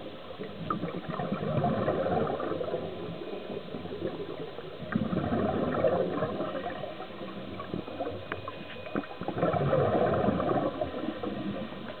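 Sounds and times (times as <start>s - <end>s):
underwater noise: 0.0s - 12.0s
diver exhaling bubbles underwater: 0.6s - 3.2s, 3.8s - 8.2s, 9.2s - 11.6s.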